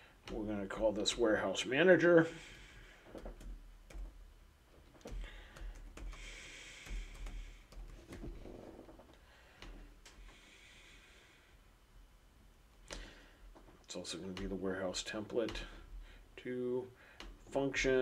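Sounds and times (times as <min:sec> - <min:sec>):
low electrical hum: 0:00.0 - 0:18.0
breathing close to microphone: 0:02.2 - 0:03.3, 0:05.1 - 0:08.4, 0:09.1 - 0:11.6, 0:12.9 - 0:13.6, 0:15.6 - 0:17.4
keyboard typing clicks: 0:05.0 - 0:08.3.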